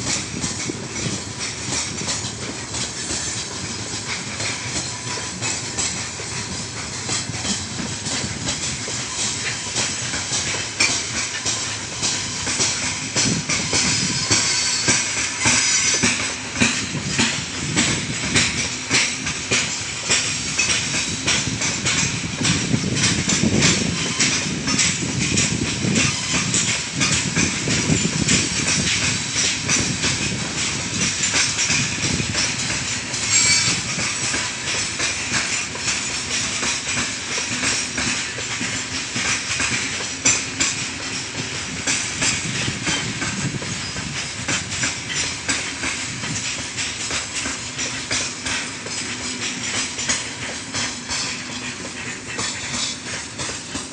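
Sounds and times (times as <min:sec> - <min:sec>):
train wheels clattering over rail joints: 0:00.0 - 0:53.9.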